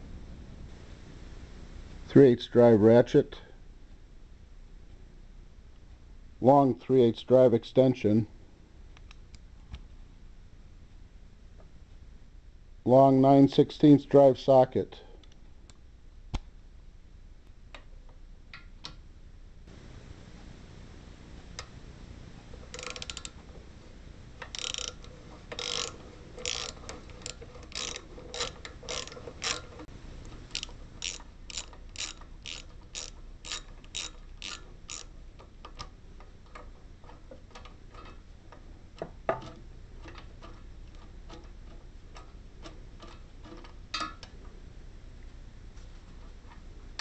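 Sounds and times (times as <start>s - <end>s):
ratchet clicking: 22.7s - 23.4s, 24.4s - 29.9s, 30.5s - 35.9s.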